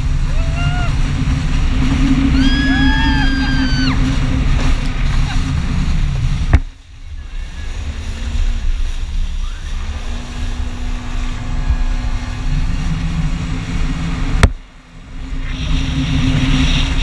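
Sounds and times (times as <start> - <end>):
jet ski engine running: 0.0 - 17.0
wind rush: 0.0 - 17.0
water spray: 15.1 - 17.0.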